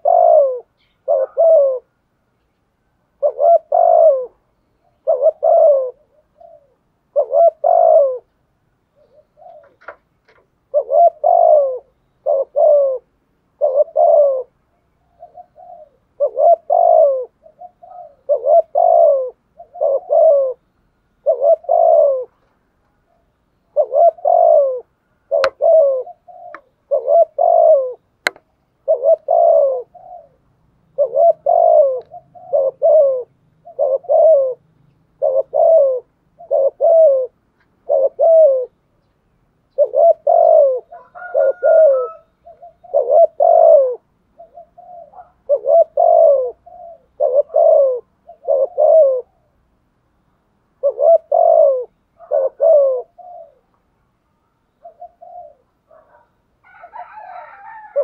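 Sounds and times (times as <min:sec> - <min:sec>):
dove cooing: 0:00.0 - 0:02.0, 0:03.1 - 0:08.3, 0:08.9 - 0:38.9, 0:39.7 - 0:49.7, 0:50.8 - 0:53.8, 0:54.7 - 0:58.0
sharp clicks: 0:28.2 - 0:28.5.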